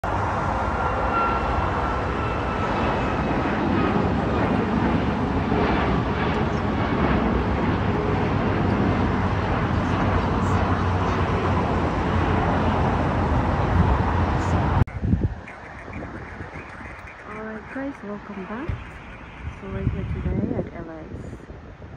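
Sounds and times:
jet engines roaring: 0.0s - 21.9s
faint high whine: 13.7s - 21.6s.

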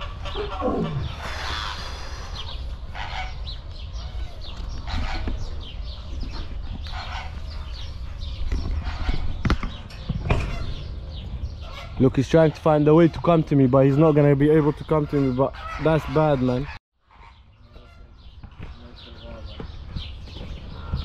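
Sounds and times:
fowl clucking and honking: 0.0s - 2.3s, 2.9s - 5.4s, 14.5s - 18.2s.

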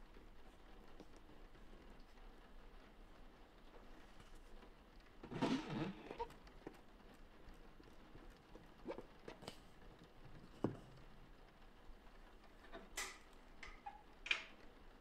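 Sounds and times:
squeegee scraping on mesh: 5.2s - 6.8s.

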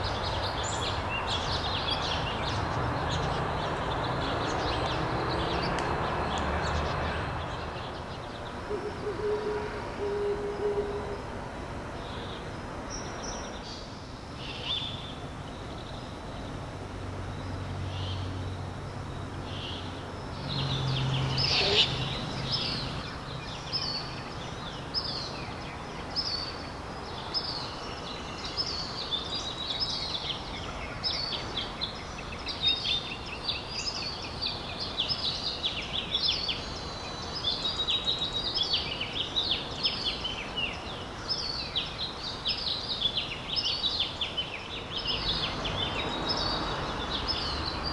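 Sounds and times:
songbirds chirping: 0.0s - 47.9s
owls hooting: 8.7s - 11.2s, 21.5s - 22.1s.

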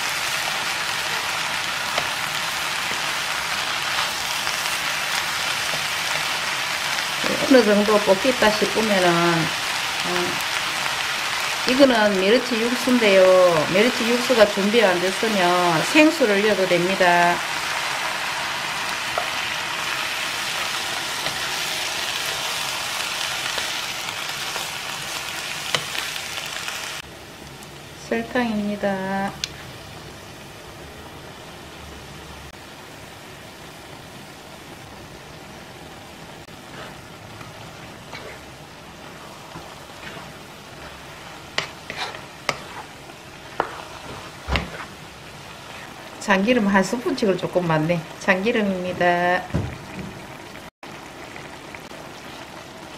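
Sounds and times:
food sizzling in a frying pan: 0.0s - 52.9s
wooden spatula stirring: 36.5s - 46.3s.

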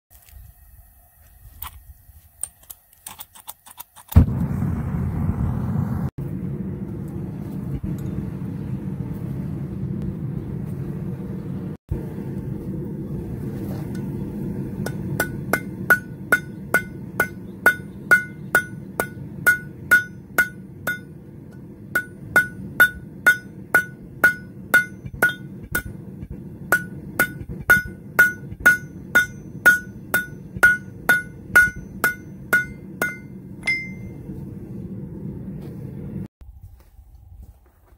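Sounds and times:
forge roaring: 4.2s - 11.2s
hammer ringing on anvil: 14.8s - 21.2s, 21.9s - 26.1s, 26.7s - 34.2s.

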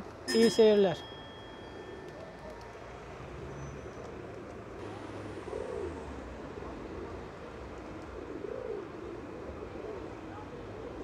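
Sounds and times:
city traffic hum: 0.0s - 11.0s
pigeon cooing: 5.3s - 6.0s, 6.7s - 11.0s.

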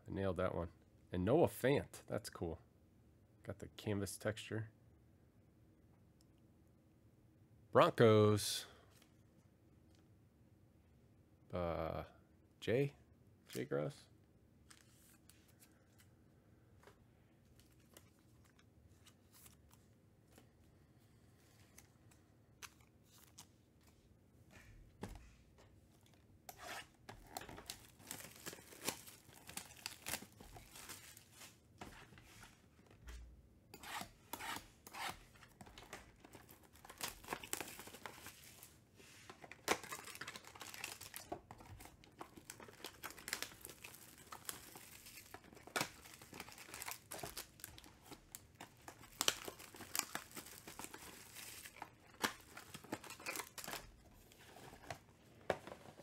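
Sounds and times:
plastic wrapping crinkling: 27.2s - 31.6s, 35.7s - 55.0s.

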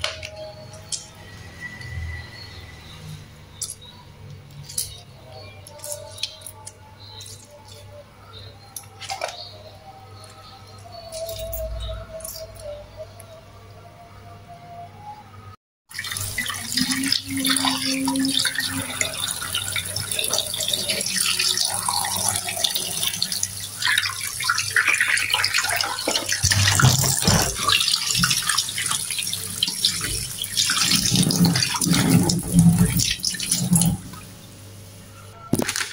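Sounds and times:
tap water splashing in sink: 16.0s - 34.3s.

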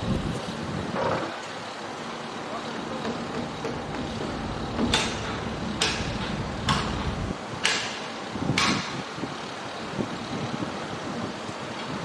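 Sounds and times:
low rumble of machinery: 0.0s - 12.0s.

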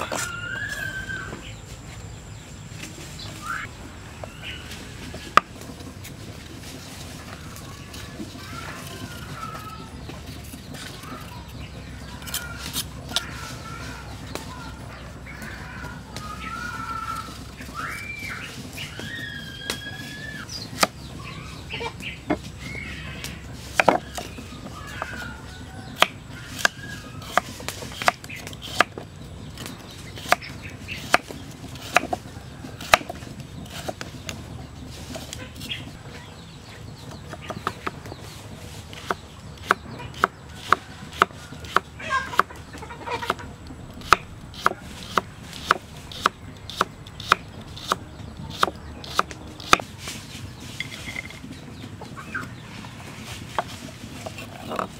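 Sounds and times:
chickens clucking: 0.0s - 54.9s
knife chopping on wooden block: 23.8s - 24.3s, 25.9s - 29.0s, 31.0s - 32.2s, 32.8s - 34.0s, 39.0s - 42.5s, 44.0s - 49.8s.

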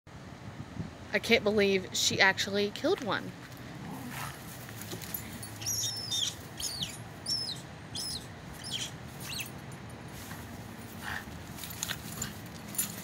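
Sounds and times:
squirrel distress squeals: 5.5s - 9.5s.

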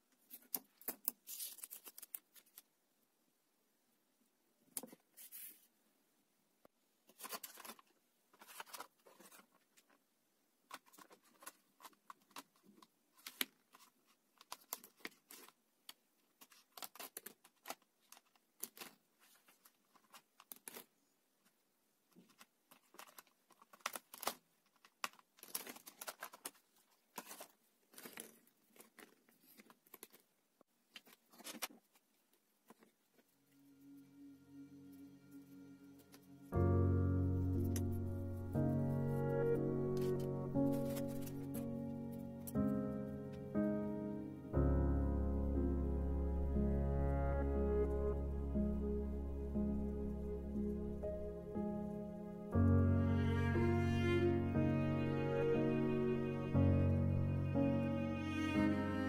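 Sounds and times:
paper and plastic rustling: 0.2s - 2.7s, 4.8s - 5.7s, 7.1s - 10.0s, 10.6s - 33.4s, 37.4s - 43.4s.

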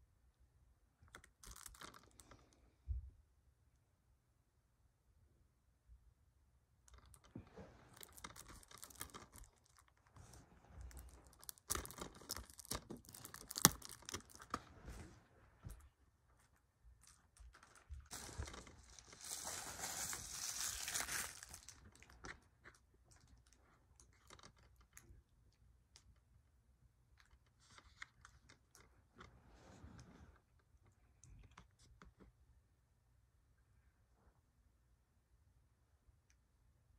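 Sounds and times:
plastic wrapping crinkling: 1.1s - 2.4s, 6.9s - 15.8s, 16.8s - 25.1s.

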